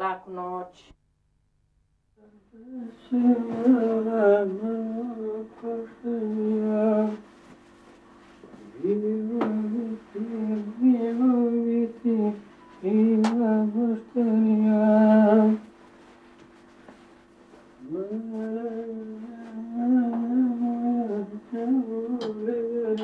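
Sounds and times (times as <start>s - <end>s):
person humming a slow tune: 2.2s - 7.2s, 8.6s - 15.7s, 17.8s - 23.0s.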